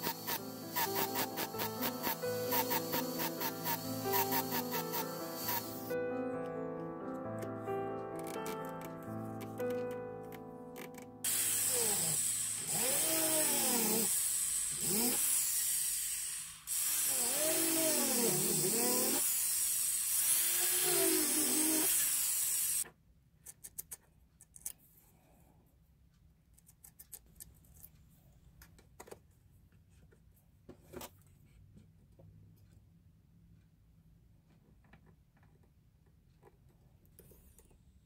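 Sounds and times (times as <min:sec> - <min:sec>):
rotary tool burr grinding metal: 0:00.0 - 0:05.8, 0:11.2 - 0:22.8.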